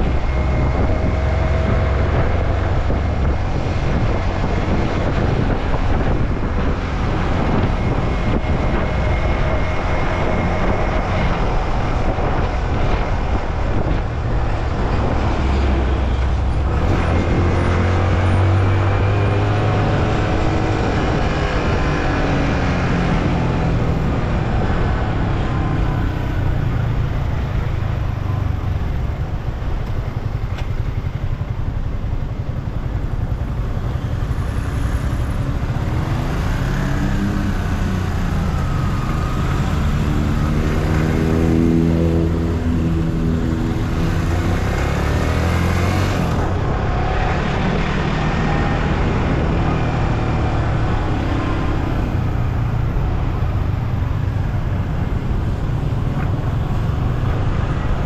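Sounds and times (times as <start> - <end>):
wind and road noise: 0.0 - 58.0
motorcycle engine revving: 32.9 - 58.0.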